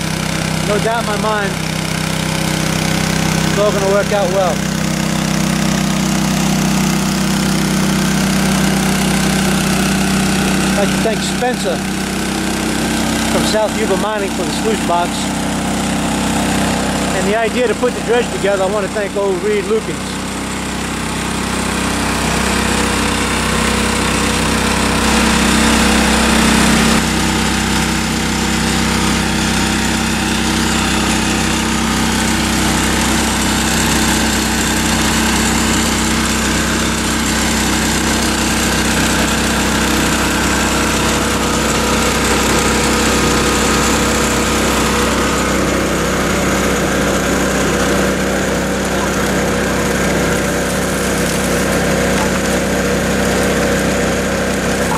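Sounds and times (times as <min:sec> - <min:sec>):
small water pump engine running: 0:00.0 - 0:54.9
water rushing: 0:38.7 - 0:54.9.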